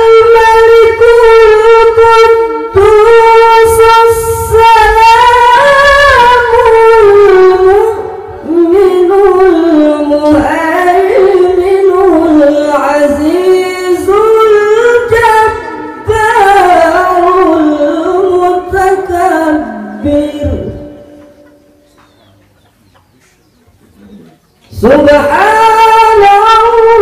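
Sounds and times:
man reciting melodically into microphone: 0.0 - 21.6, 24.6 - 27.0.

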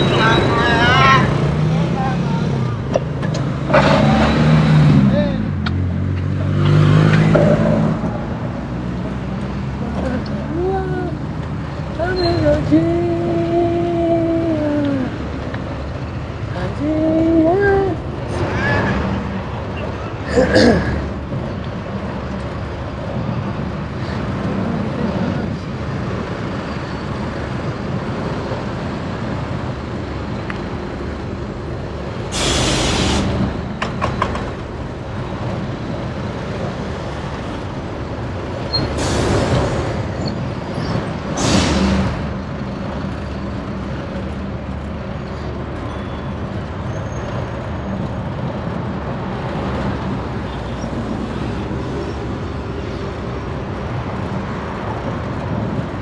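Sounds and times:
traffic rumble: 0.0 - 56.0
short loud hisses: 32.3 - 33.3.

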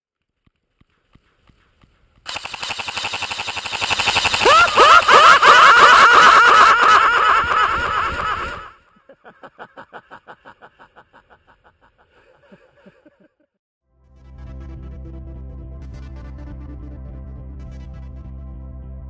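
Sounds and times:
automatic gunfire: 2.3 - 5.2.

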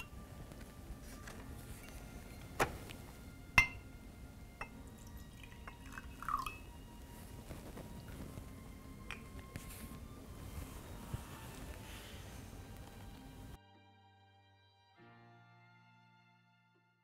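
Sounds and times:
glass clinks: 3.6 - 3.9, 4.6 - 6.7, 9.1 - 9.4
liquid pouring into glass: 4.6 - 6.9.

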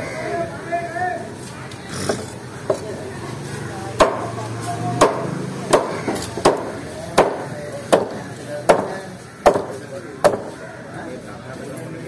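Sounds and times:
knife chopping fish on wood block: 5.0 - 10.5.

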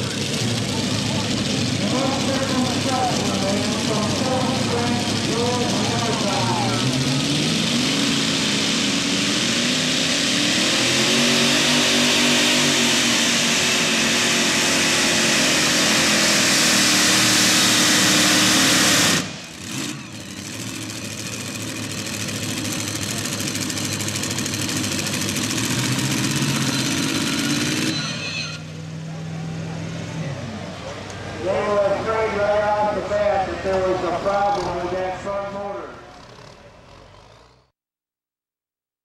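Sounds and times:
engine idling: 0.0 - 10.3, 12.5 - 28.0
tractor engine at full throttle: 0.0 - 37.7.

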